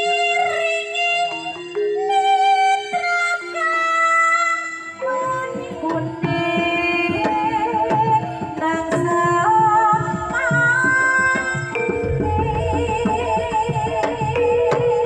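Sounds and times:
woman singing: 0:00.0 - 0:15.0
metallophones ringing: 0:10.8 - 0:15.0
hand drum strokes: 0:11.7 - 0:15.0.

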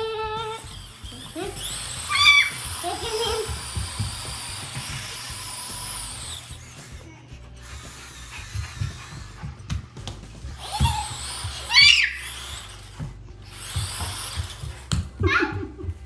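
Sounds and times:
robot wheel motors whirring: 0:00.5 - 0:07.0, 0:10.6 - 0:14.9.

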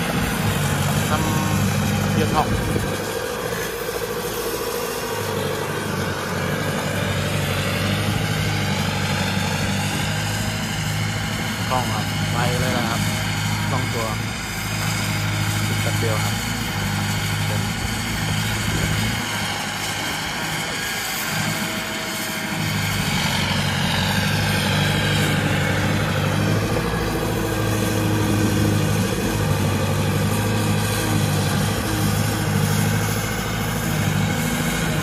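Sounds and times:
loader engine running: 0:00.0 - 0:35.0.

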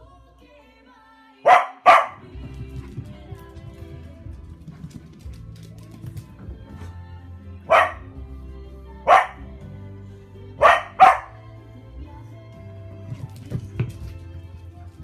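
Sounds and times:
music playing: 0:00.0 - 0:15.0
dog barking: 0:01.4 - 0:02.2, 0:07.7 - 0:08.1, 0:09.1 - 0:09.5, 0:10.6 - 0:11.4.

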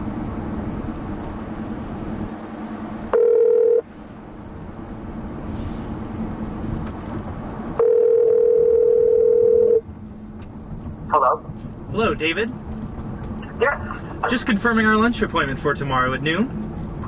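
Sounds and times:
car cabin hum and road noise: 0:00.0 - 0:17.0
telephone ringback tone: 0:03.1 - 0:03.8, 0:07.8 - 0:09.8.

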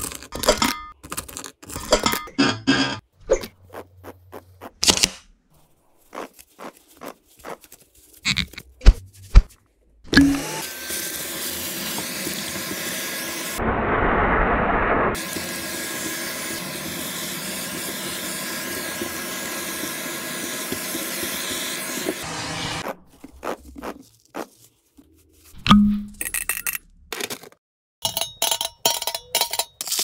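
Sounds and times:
vacuum cleaner running: 0:10.3 - 0:13.6, 0:15.2 - 0:22.8.

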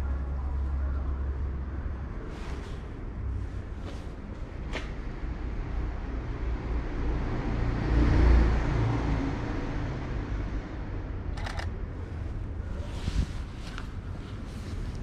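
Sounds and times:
low outdoor rumble: 0:00.0 - 0:07.0, 0:10.0 - 0:15.0
camera shutter clicks: 0:11.4 - 0:11.7.

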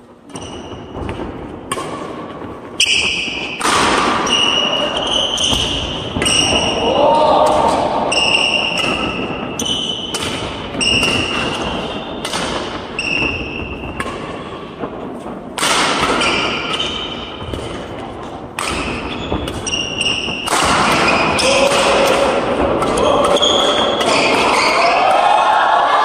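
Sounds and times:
shoes squeaking on floor: 0:00.0 - 0:01.2, 0:02.2 - 0:03.6, 0:04.2 - 0:06.8, 0:08.1 - 0:14.7, 0:16.1 - 0:21.5, 0:22.9 - 0:25.0
rackets hitting shuttlecock: 0:00.2 - 0:25.2.

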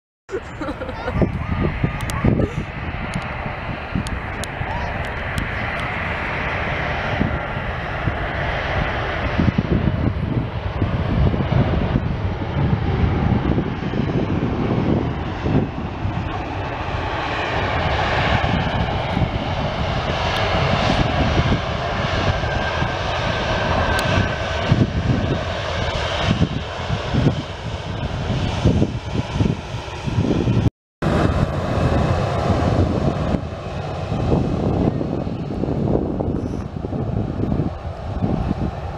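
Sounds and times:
jet engines roaring: 0:00.3 - 0:38.9
faint engine whine: 0:31.0 - 0:38.9.

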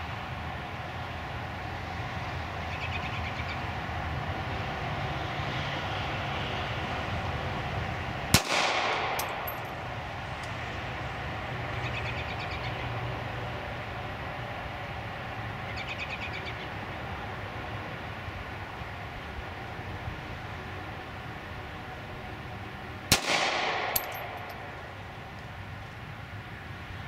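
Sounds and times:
pistol shot with echo: 0:08.4 - 0:09.8, 0:23.1 - 0:24.9.

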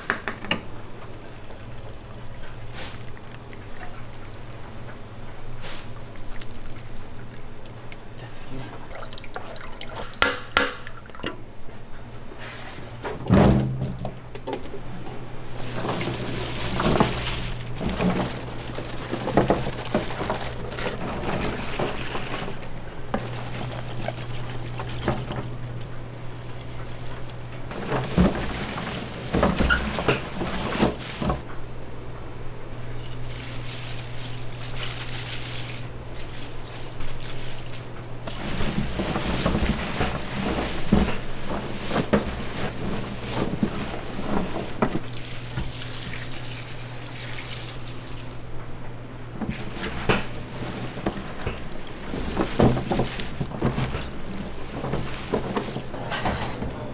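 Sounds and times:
low machine hum: 0:00.0 - 0:56.9
liquid pouring and splashing: 0:01.0 - 0:05.1, 0:05.7 - 0:08.1, 0:08.8 - 0:10.2, 0:33.3 - 0:48.5.

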